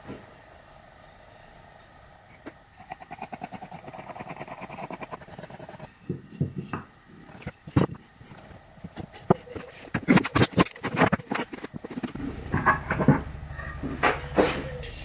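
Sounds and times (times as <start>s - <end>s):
wooden blocks knocking: 6.0s - 13.2s.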